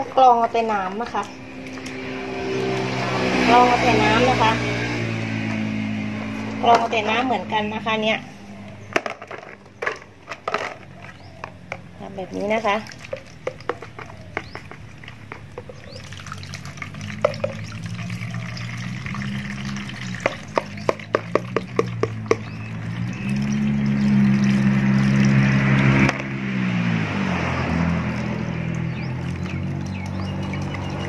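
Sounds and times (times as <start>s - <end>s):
water pouring through strainer: 12.6s - 13.8s, 14.6s - 26.1s.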